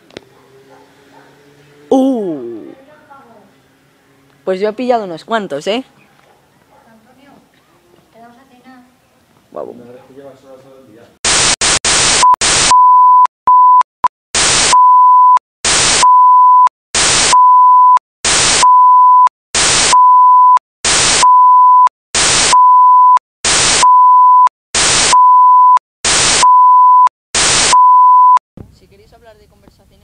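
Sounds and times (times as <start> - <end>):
test-tone beep: 12.1 - 13.9, 26.4 - 28.4.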